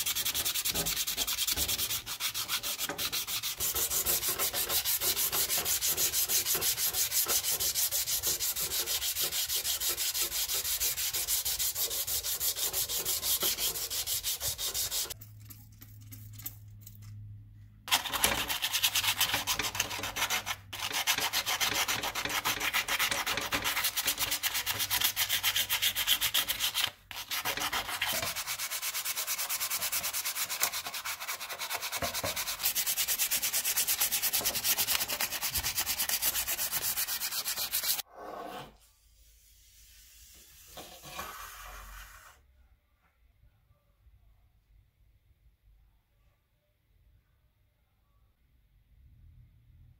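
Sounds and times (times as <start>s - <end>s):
sandpaper rubbing metal: 0.0s - 15.2s, 17.9s - 38.0s.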